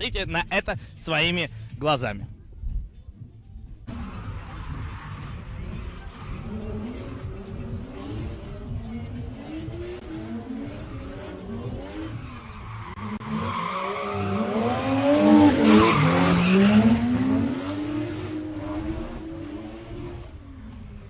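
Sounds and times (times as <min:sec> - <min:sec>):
tyres squealing and skidding: 0:03.9 - 0:19.6
car engines revving: 0:03.9 - 0:21.0.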